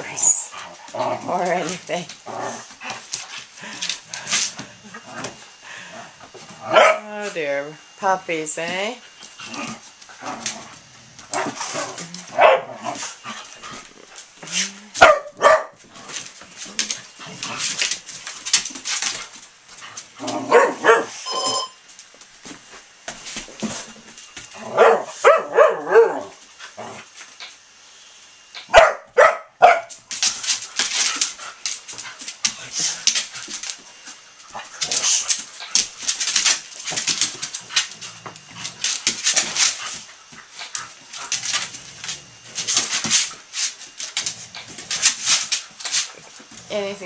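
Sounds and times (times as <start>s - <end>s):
dogs scuffling and scrabbling: 0.0s - 5.6s, 8.4s - 27.6s, 28.5s - 47.0s
dog barks: 6.7s - 7.0s, 12.4s - 12.8s, 15.0s - 15.8s, 20.5s - 21.2s, 24.8s - 26.3s, 28.7s - 29.9s.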